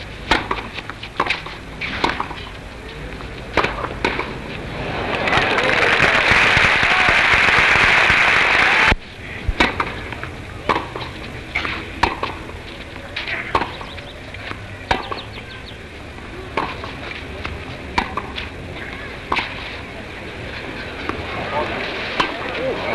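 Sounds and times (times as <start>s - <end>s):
tennis ball pocks: 0.2s - 2.5s, 3.5s - 4.4s, 9.5s - 12.5s, 13.2s - 15.3s, 16.5s - 18.4s
crowd applause: 4.7s - 9.0s.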